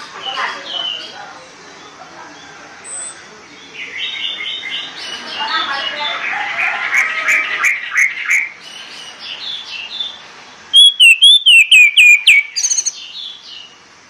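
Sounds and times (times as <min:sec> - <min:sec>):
thrush singing: 0:10.8 - 0:12.9.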